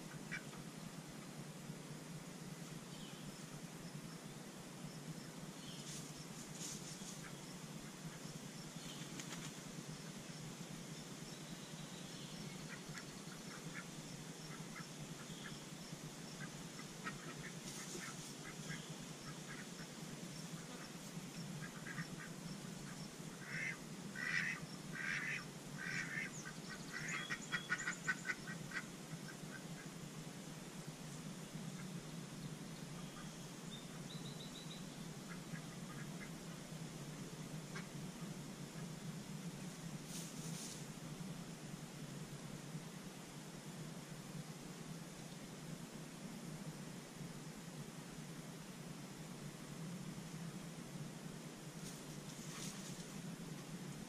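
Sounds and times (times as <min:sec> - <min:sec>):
faint rustles: 0:05.0 - 0:24.2, 0:29.1 - 0:48.2, 0:49.3 - 0:54.0.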